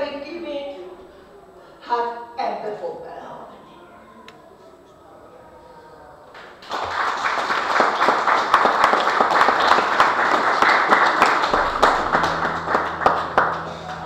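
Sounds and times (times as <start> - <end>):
audience clapping: 6.3 - 14.0.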